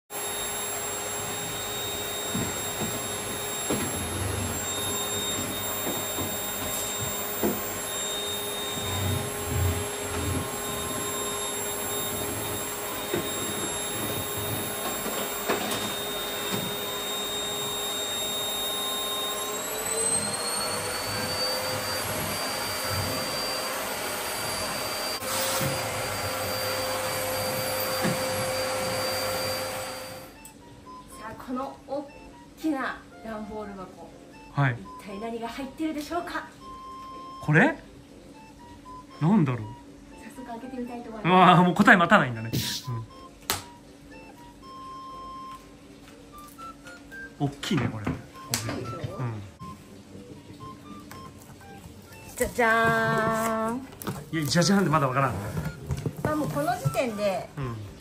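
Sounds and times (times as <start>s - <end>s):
vacuum cleaner running: 0.0s - 30.4s, 50.6s - 58.0s.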